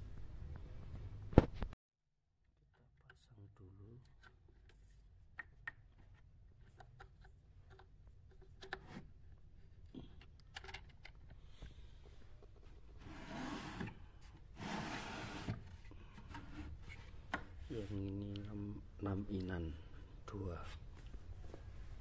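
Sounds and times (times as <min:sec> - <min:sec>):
clicks and rubbing of wires: 0:03.9 - 0:09.1.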